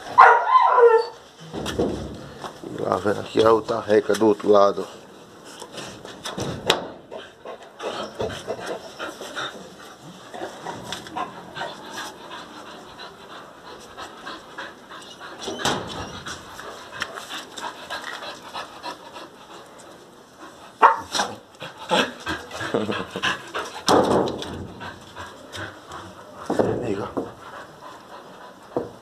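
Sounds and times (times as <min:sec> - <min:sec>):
dogs panting: 0:07.0 - 0:29.0.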